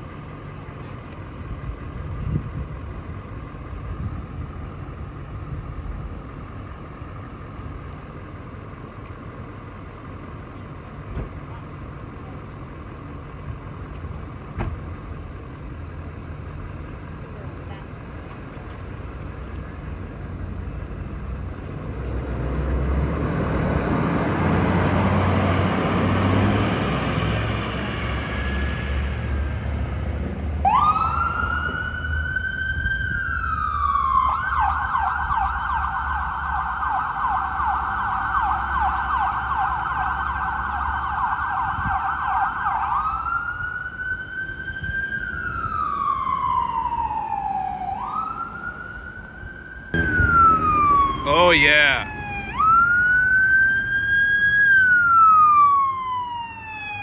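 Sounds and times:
heavy vehicle engine rumble: 0.0 - 57.0
road noise: 0.0 - 57.0
emergency siren wailing and yelping: 30.6 - 57.0.

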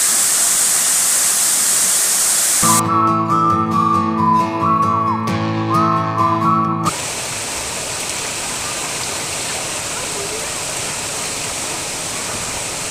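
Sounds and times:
guitar background music: 2.6 - 6.9
river water rushing: 6.9 - 12.9.

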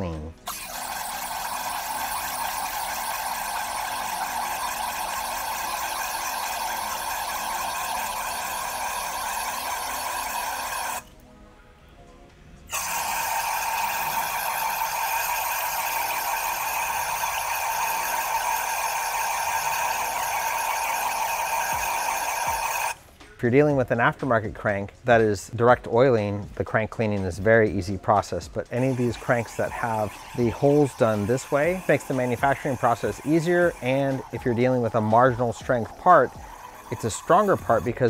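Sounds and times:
aerosol spray hissing: 0.5 - 11.0, 12.7 - 23.0, 28.8 - 38.0.

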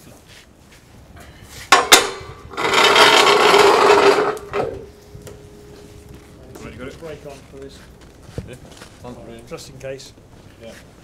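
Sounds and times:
loud scraping rub: 1.5 - 9.0
sharp knocks: 1.7 - 6.7.

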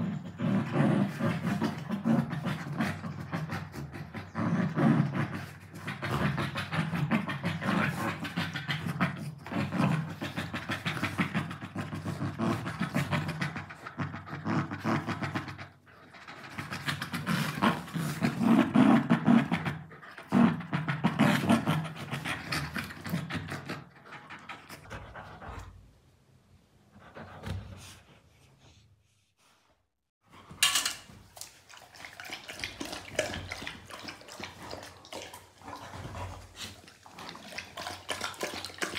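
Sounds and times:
dogs panting and playing: 0.0 - 25.8, 26.9 - 29.0, 30.2 - 38.9
dog lapping water from metal bowl: 30.7 - 38.9.

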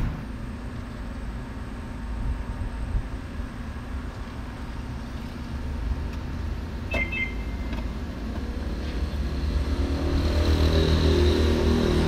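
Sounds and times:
short electronic beep: 6.9 - 7.7.

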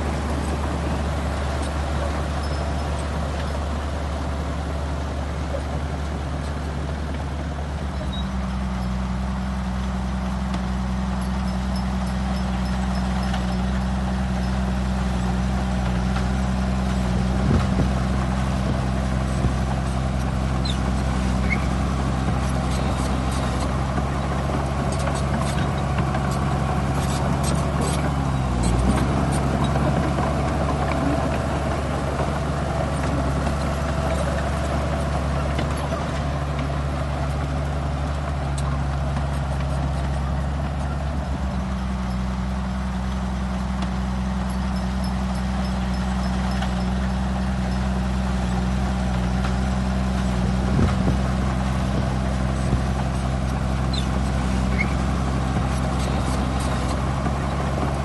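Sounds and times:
bulldozer diesel engine drone: 0.0 - 58.0.

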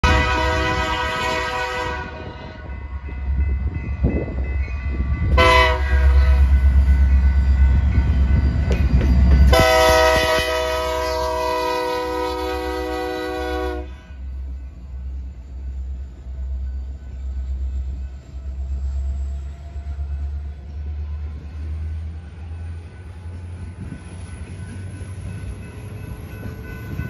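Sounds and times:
locomotive air horn blasts: 0.0 - 2.7, 5.3 - 6.6, 9.5 - 14.2
locomotive rumble: 0.0 - 27.0.

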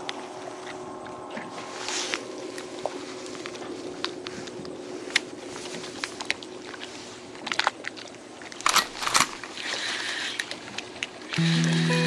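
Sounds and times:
loud rustling bursts: 8.6 - 9.5.

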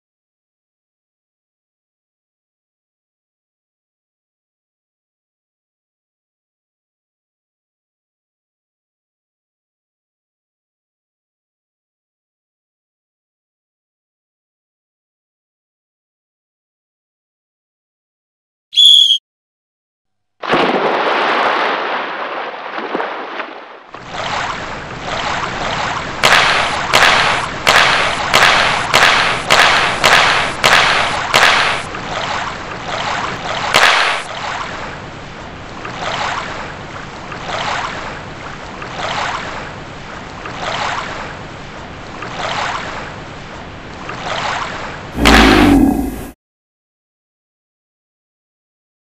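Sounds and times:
water splashing and swishing: 20.4 - 46.4.

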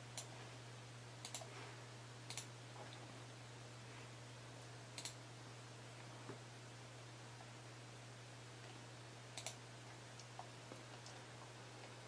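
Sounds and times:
computer mouse clicks: 1.2 - 1.5, 2.3 - 2.5, 5.0 - 5.2, 9.4 - 9.6.

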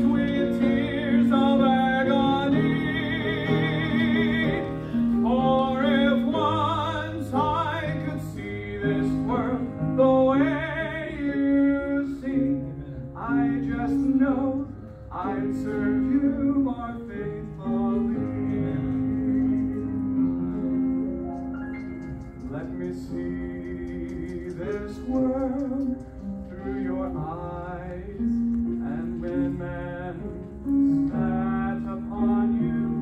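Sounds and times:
man singing operatically: 0.0 - 20.0, 22.5 - 30.4, 31.0 - 33.0.

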